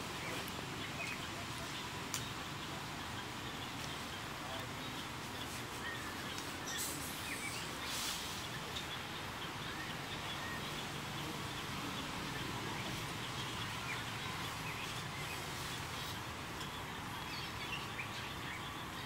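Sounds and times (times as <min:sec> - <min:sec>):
outdoor background noise: 0:00.0 - 0:19.0
brief hiss: 0:06.7 - 0:08.5.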